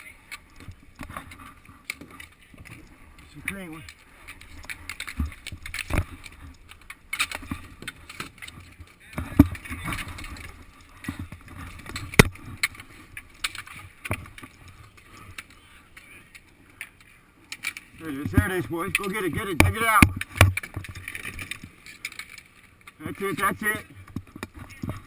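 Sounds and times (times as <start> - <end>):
inline skate wheels on concrete: 0.0 - 25.0
hockey sticks and ball knocking: 17.6 - 21.8.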